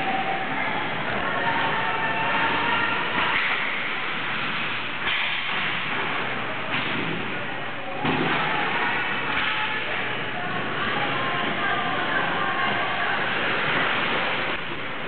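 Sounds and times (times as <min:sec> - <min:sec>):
faint shouting voices: 0:00.0 - 0:03.9, 0:07.4 - 0:13.7.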